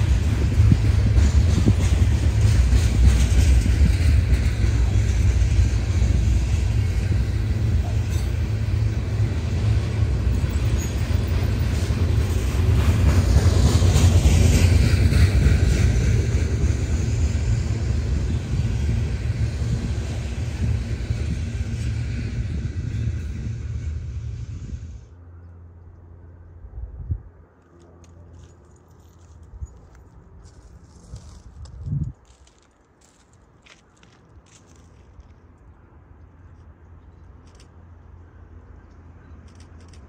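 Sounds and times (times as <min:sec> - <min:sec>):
train wheels rumbling on rail: 0:00.0 - 0:25.2.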